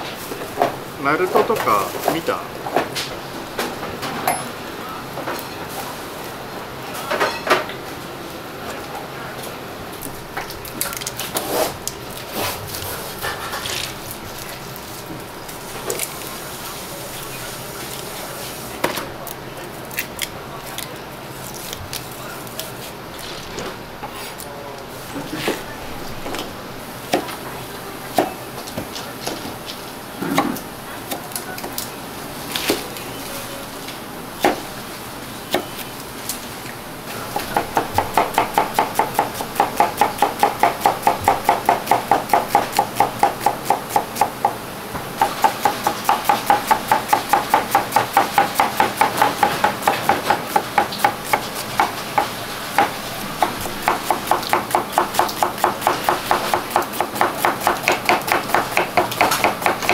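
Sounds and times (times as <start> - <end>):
knife chopping on wooden board: 45.2 - 59.9.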